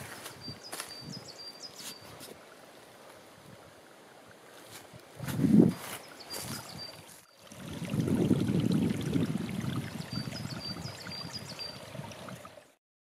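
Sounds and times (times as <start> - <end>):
footsteps crunching through dry leaves: 0.0 - 1.2, 4.5 - 7.2
small bird chirping: 0.3 - 2.2, 5.7 - 7.2.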